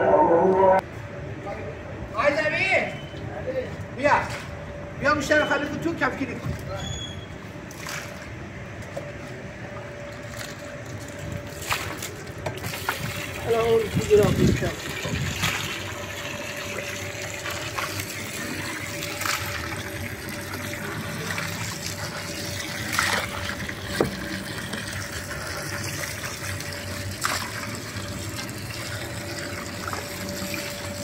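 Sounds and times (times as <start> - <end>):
water pouring into metal bowl: 12.6 - 31.0.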